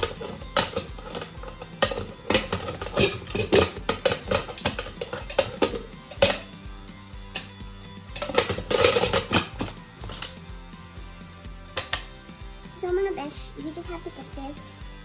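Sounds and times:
metal lid clanking and scraping: 0:00.0 - 0:06.6, 0:07.3 - 0:10.4, 0:11.8 - 0:12.1.

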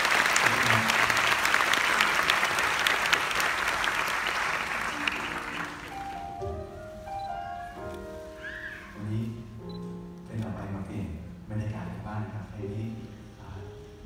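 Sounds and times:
audience applause: 0:00.0 - 0:06.4
soft held musical notes: 0:09.0 - 0:14.0.

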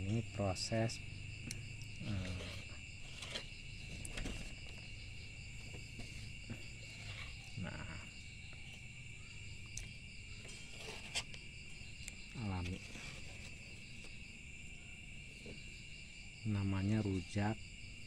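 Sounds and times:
crickets chirping: 0:00.0 - 0:18.0
spoon scraping coconut shell: 0:02.0 - 0:04.8, 0:09.8 - 0:11.4.

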